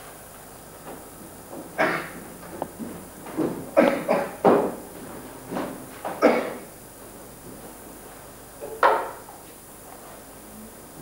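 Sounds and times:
man coughing: 1.8s - 2.2s, 3.8s - 4.4s, 6.2s - 6.7s.

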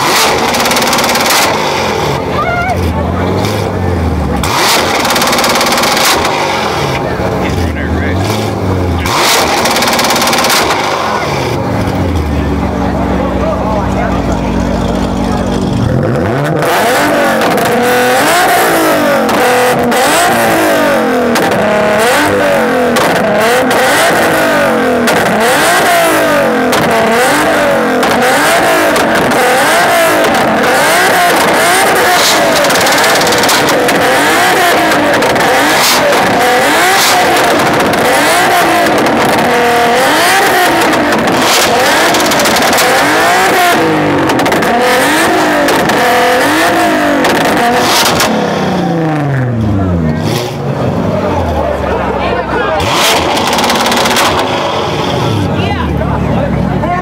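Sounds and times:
car engines revving: 0.0s - 57.0s.

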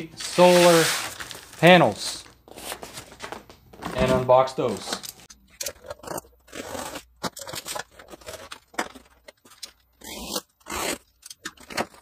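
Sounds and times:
knife cutting cardboard: 5.7s - 8.9s, 9.9s - 12.0s.

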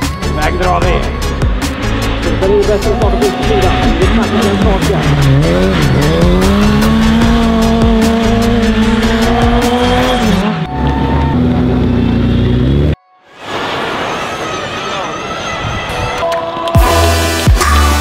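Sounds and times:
race car engine revving: 0.5s - 13.0s.

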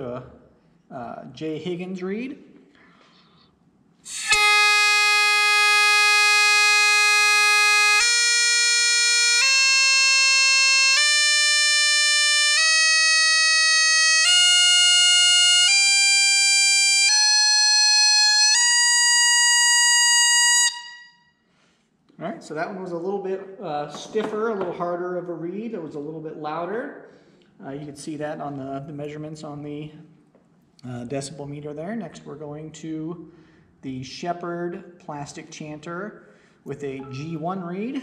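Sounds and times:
bagpipe chanter playing scale: 4.1s - 21.4s, 37.0s - 38.0s.

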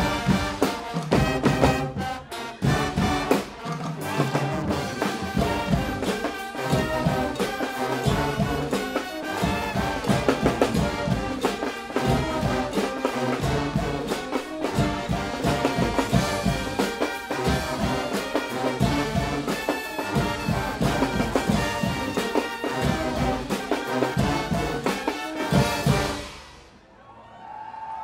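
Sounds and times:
drum and cymbal hits: 0.0s - 26.7s
brass band playing: 0.0s - 26.8s.

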